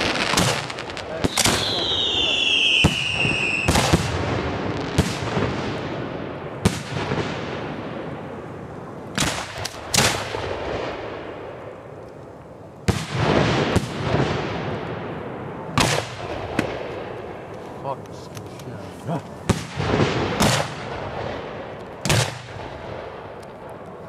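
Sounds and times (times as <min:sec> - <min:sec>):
firework shells booming: 0:00.0 - 0:08.4, 0:09.1 - 0:11.8, 0:12.8 - 0:17.6, 0:19.4 - 0:23.5
rolling echo: 0:00.0 - 0:24.0.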